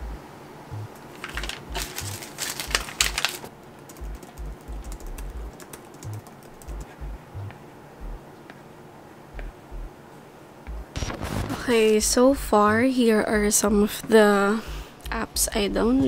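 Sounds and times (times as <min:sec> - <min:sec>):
quiet background music: 0:00.0 - 0:16.0
packaging rustling: 0:01.0 - 0:04.4.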